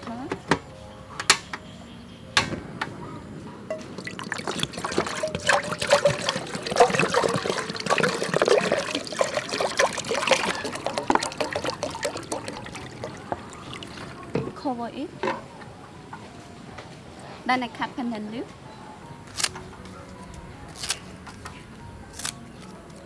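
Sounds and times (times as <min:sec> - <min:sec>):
water pouring into metal pot: 0:03.7 - 0:14.4.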